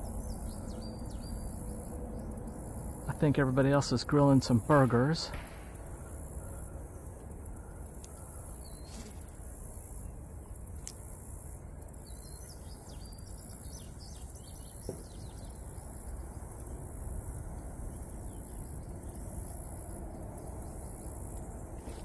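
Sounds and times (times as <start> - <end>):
bird chirping: 0.0 - 9.1, 12.0 - 15.7
insects chorus: 0.0 - 22.0
low background noise: 0.0 - 22.0.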